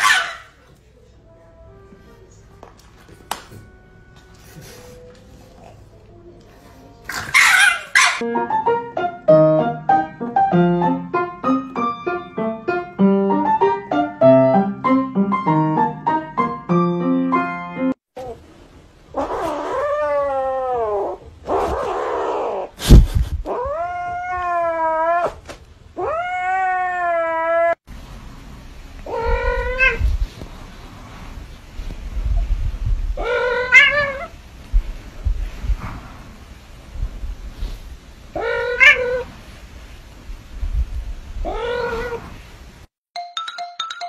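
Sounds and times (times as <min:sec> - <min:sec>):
cat meowing: 0:23.5 - 0:25.4, 0:26.0 - 0:27.8, 0:29.0 - 0:30.1, 0:33.2 - 0:34.4, 0:38.4 - 0:39.3, 0:41.4 - 0:42.3.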